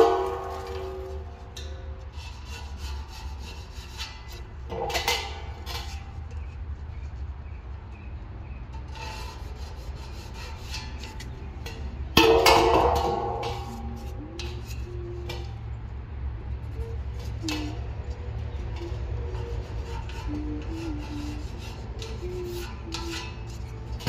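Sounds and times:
metal keg clanking: 0.0 - 2.1, 4.0 - 6.1, 10.7 - 15.6
pencil scratching on metal: 2.0 - 6.2, 8.8 - 11.8, 13.4 - 15.6, 18.5 - 24.0.

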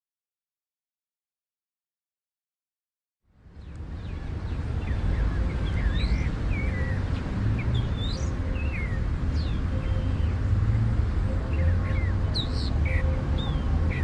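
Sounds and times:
low outdoor rumble: 3.3 - 14.0
birds chirping: 3.5 - 14.0.

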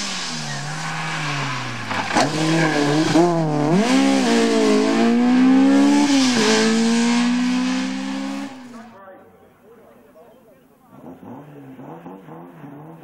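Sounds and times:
sharp crack: 0.0 - 3.5
rally car engine revving: 0.0 - 8.9, 10.9 - 13.0.

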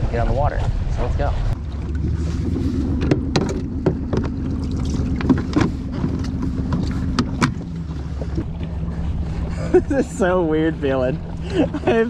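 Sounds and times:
wind rumble on microphone: 0.0 - 12.0
knocks and clunks of kayak gear: 1.6 - 9.8.

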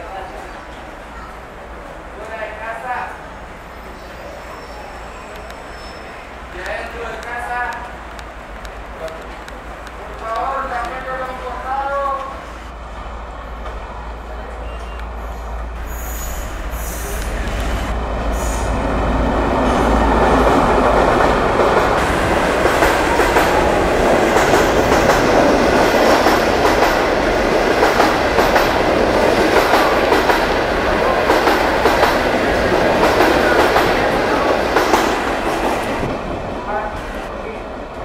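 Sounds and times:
train wheels clattering over rails: 15.6 - 36.5.

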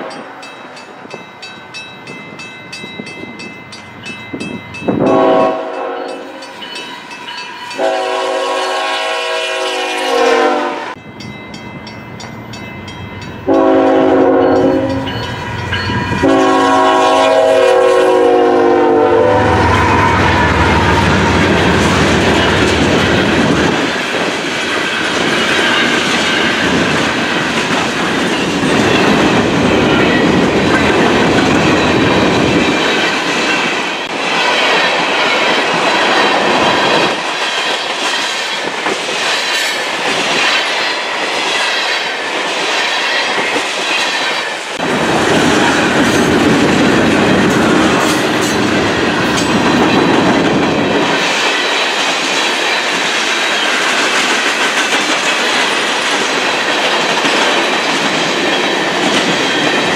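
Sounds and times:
freight train rolling past: 0.0 - 59.9
steel wheels clattering on rails: 20.8 - 59.9.

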